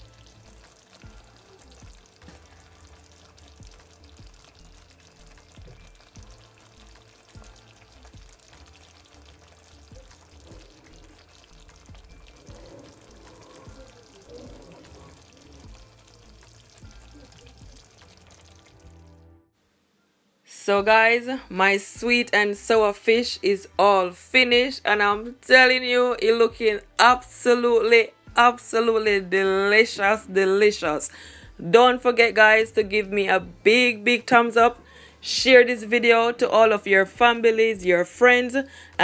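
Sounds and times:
sauce simmering with bubbles popping: 0.0s - 19.1s
soft background music: 0.0s - 39.0s.

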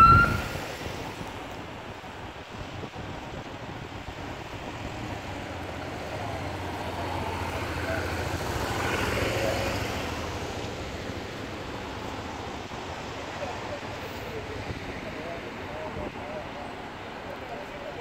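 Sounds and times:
motorcycles riding past: 4.8s - 12.4s.

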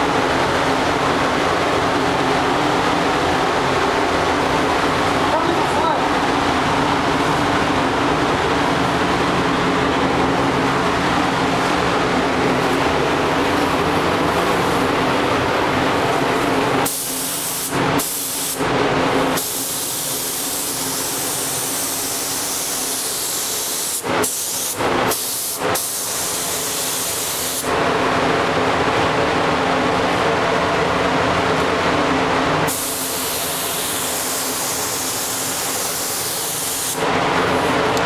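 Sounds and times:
ventilation fans droning: 0.0s - 38.0s
spray gun hissing: 16.8s - 18.6s, 19.3s - 27.7s, 32.7s - 37.0s.

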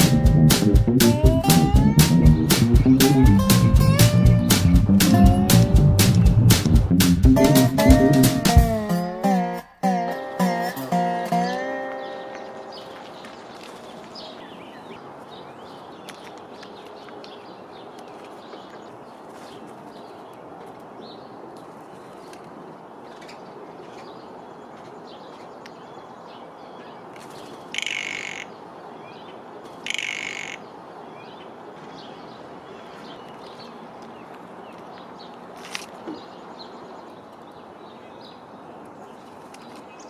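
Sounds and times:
steady outdoor hiss: 0.0s - 40.0s
small birds chirping: 10.4s - 40.0s
blue jay harsh calls: 27.7s - 28.6s, 29.8s - 30.7s.

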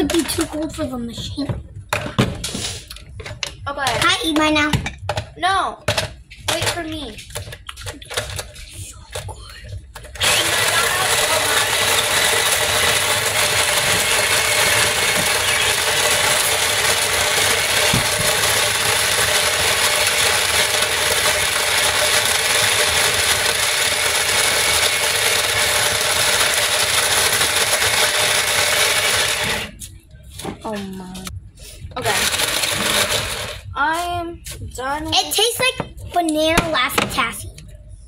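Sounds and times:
snow cone machine grinding ice: 10.1s - 29.9s, 32.0s - 33.6s.

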